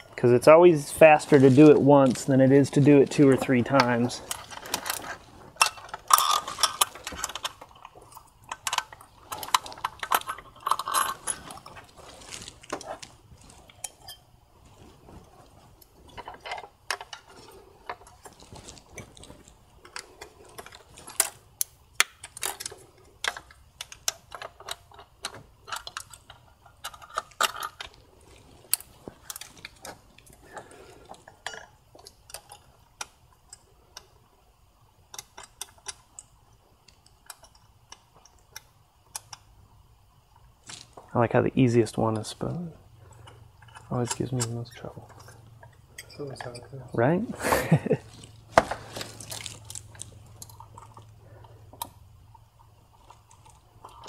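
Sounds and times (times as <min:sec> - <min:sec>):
metallic clinks of bolts and tools: 0:08.5 - 0:11.6.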